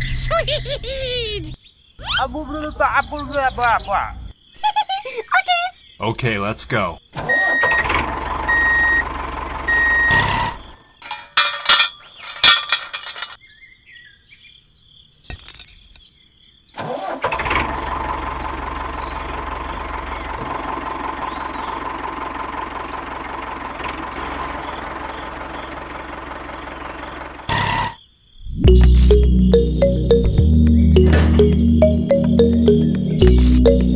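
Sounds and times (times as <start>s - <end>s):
tractor engine running: 7.8s - 10.2s, 17.3s - 27.5s, 28.7s - 33.9s
evenly spaced beeps: 28.7s - 33.9s.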